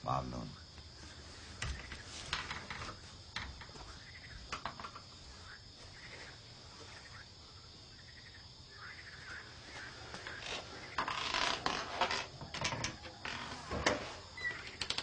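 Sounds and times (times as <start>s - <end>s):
crickets chirring: 0.0s - 15.0s
soft footsteps: 0.7s - 7.3s, 9.3s - 11.0s
rustling: 0.8s - 7.2s, 9.2s - 15.0s.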